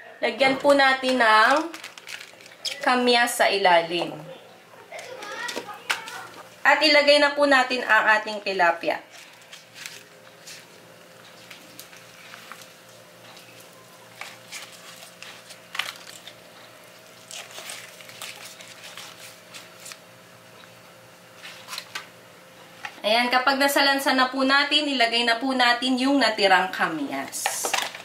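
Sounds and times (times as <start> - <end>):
faint steady hum: 0.0 - 28.0
banana leaves rustling: 9.1 - 20.0.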